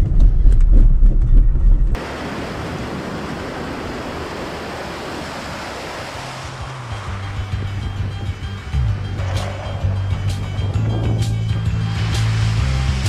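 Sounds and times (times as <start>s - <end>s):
river water rushing: 2.0s - 13.0s
low vehicle rumble: 6.2s - 13.0s.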